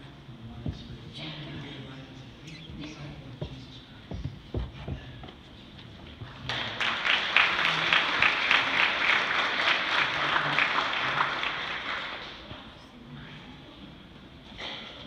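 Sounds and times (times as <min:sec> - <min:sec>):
soft knocks: 0:03.4 - 0:05.4
congregation applauding: 0:06.4 - 0:12.5.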